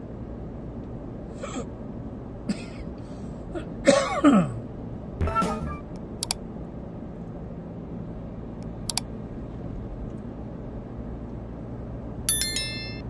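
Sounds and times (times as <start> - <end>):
double mouse-click sound effect: 5.4 - 6.4.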